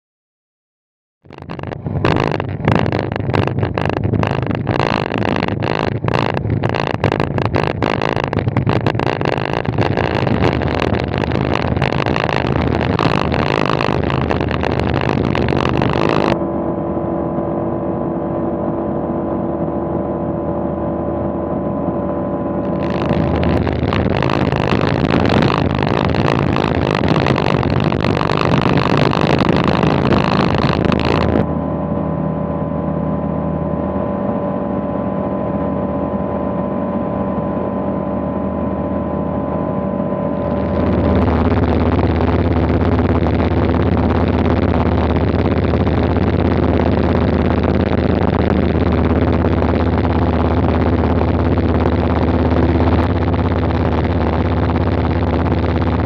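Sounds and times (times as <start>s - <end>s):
wind flutter on microphone: 1.3s - 16.4s, 22.6s - 31.5s, 40.4s - 56.0s.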